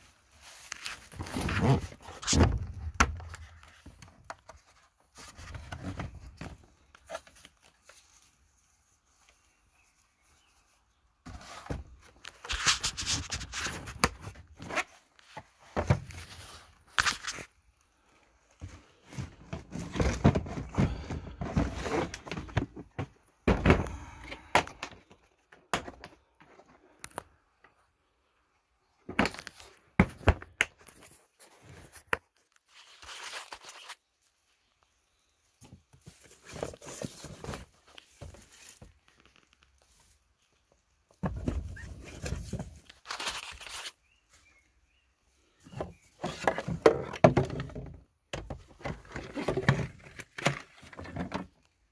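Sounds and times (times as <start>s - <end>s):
rustling: 0.0s - 22.9s
hard plastic knocking and scraping: 45.7s - 51.5s.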